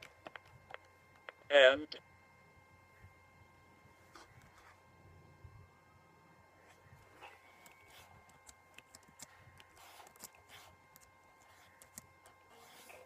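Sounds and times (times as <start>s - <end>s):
phone handling clicks and rustles: 0.0s - 1.5s.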